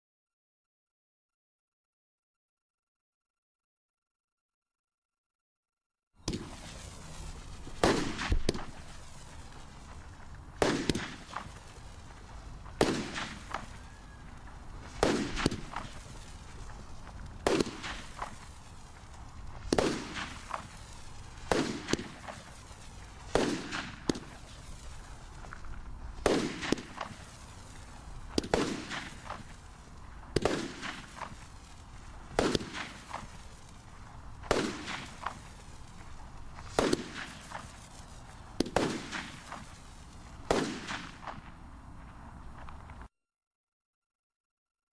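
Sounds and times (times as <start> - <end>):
firework bangs: 6.2 - 43.1
firework hiss: 6.2 - 43.1.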